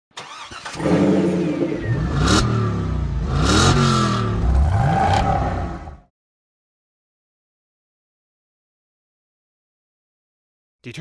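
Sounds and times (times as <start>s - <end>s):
car engine accelerating: 0.3s - 6.1s.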